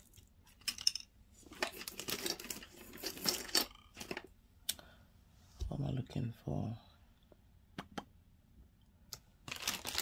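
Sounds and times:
rustling and crinkling: 0:00.0 - 0:04.3, 0:09.4 - 0:10.0.

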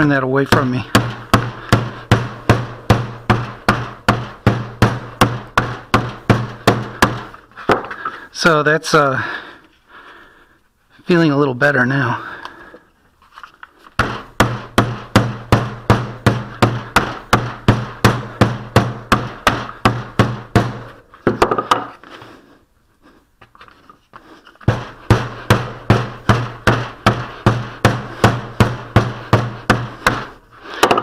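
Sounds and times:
wooden mallet beating putty: 0:00.0 - 0:08.0, 0:14.0 - 0:21.9, 0:24.6 - 0:31.0.

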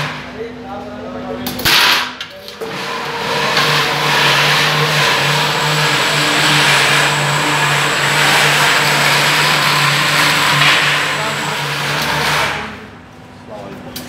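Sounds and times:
mechanical noise of machine: 0:01.5 - 0:14.0
low motor hum: 0:02.6 - 0:13.5.

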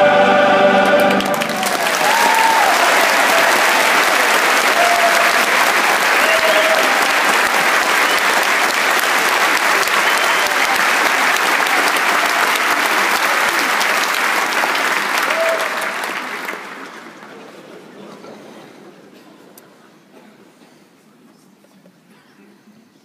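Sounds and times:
large audience applauding: 0:00.8 - 0:17.7.

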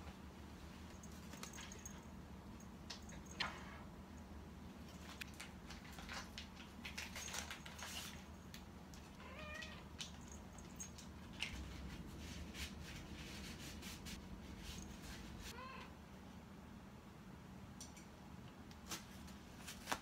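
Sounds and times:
cat meowing: 0:09.2 - 0:09.9, 0:15.5 - 0:16.0.

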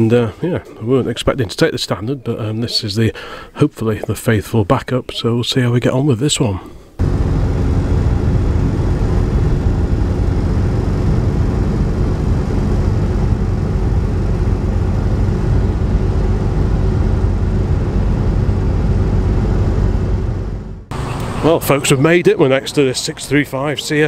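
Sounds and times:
car engine droning: 0:07.0 - 0:23.3
road noise: 0:07.0 - 0:24.0.

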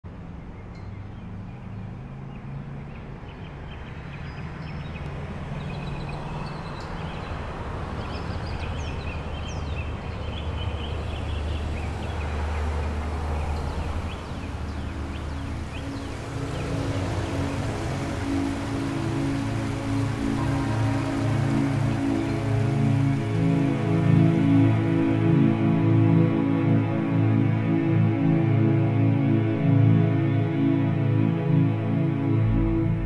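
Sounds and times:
small birds chirping: 0:00.5 - 0:24.7.

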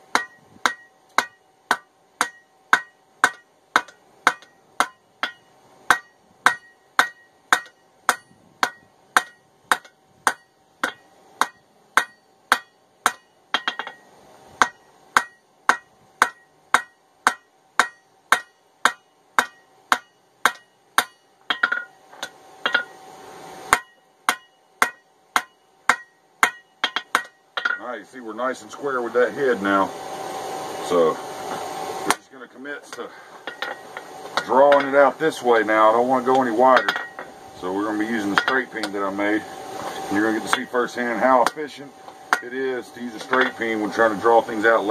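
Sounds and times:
hammer striking metal on anvil: 0:00.0 - 0:23.0, 0:23.7 - 0:28.0, 0:32.9 - 0:35.2, 0:36.2 - 0:37.3, 0:38.2 - 0:39.0, 0:40.4 - 0:41.7, 0:43.1 - 0:43.7.

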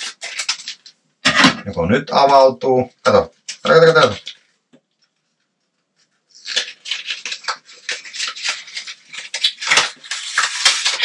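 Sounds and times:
plastic packaging crinkling and tearing: 0:00.0 - 0:01.0, 0:03.4 - 0:04.5, 0:06.0 - 0:11.0.

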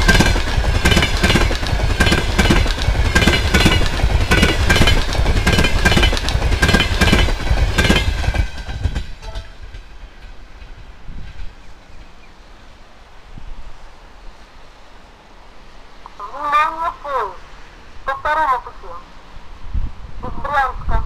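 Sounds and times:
train wheels clattering on rails: 0:00.0 - 0:12.3.

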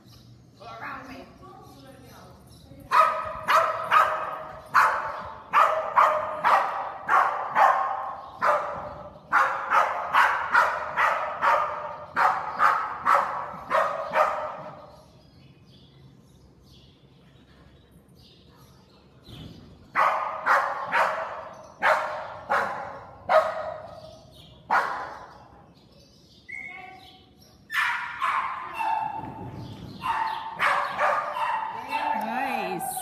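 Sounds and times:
dog barking in metal hall: 0:02.9 - 0:15.1, 0:19.9 - 0:25.5, 0:27.7 - 0:32.2.

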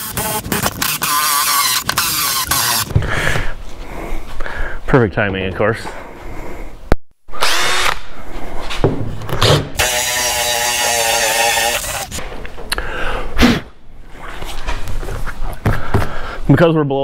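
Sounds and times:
cordless drill boring: 0:00.0 - 0:02.9, 0:07.4 - 0:08.0, 0:09.8 - 0:12.2.

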